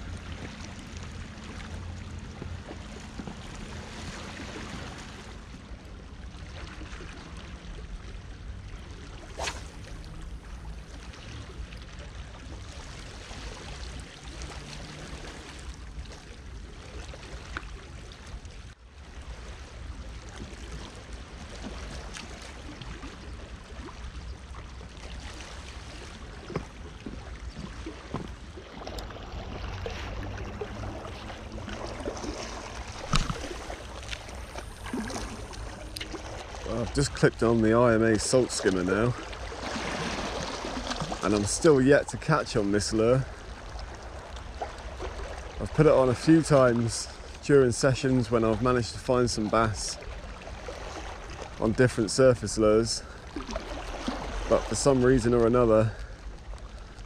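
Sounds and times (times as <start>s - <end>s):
sea washing against rocks: 28.3s - 43.3s.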